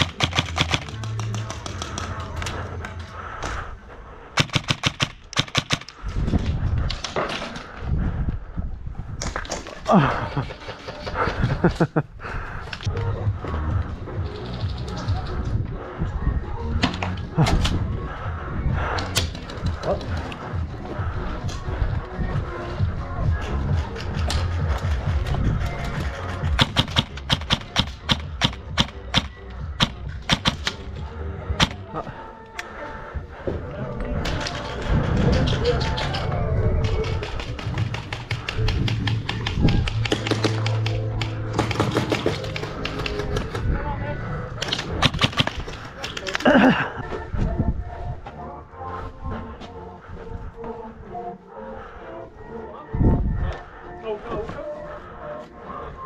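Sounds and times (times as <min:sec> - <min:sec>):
airsoft gun shots: 0:04.4 - 0:05.9.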